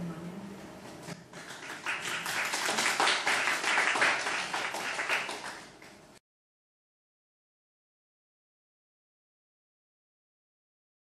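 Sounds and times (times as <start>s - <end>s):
audience applauding: 1.3s - 6.0s.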